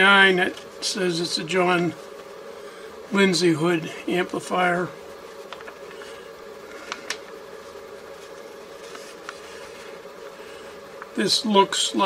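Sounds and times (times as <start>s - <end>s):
steady background hum: 0.0s - 12.0s
paper rustling and crinkling: 5.2s - 11.2s.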